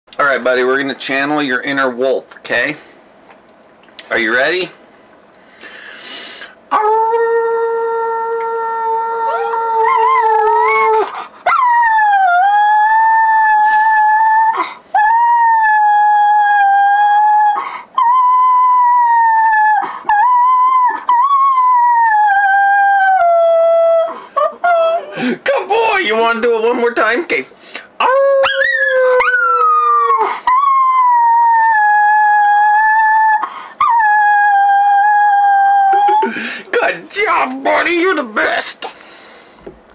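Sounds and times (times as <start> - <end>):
dog howling: 6.7 - 25.3, 28.0 - 36.4
man howling: 6.7 - 26.4, 28.0 - 38.6.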